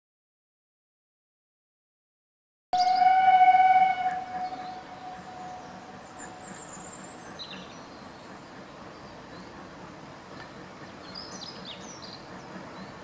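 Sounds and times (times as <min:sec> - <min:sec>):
steam locomotive whistle: 0:02.8 - 0:07.4
faint open-air background: 0:02.8 - 0:13.0.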